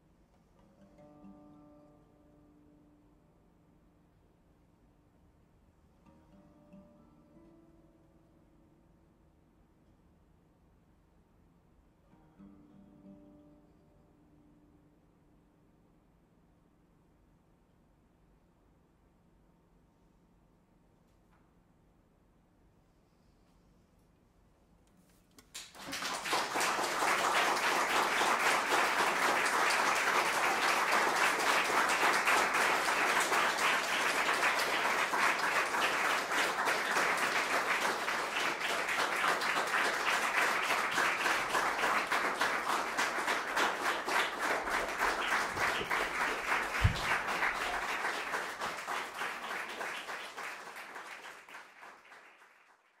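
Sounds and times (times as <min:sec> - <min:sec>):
audience applauding: 0:25.4 - 0:53.0.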